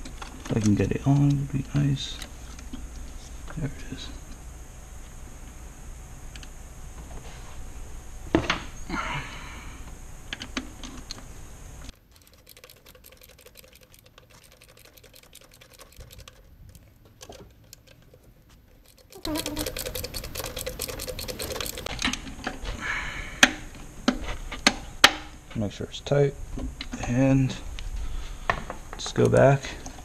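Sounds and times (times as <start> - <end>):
hand ratchet clicking: 11.9 - 22.0.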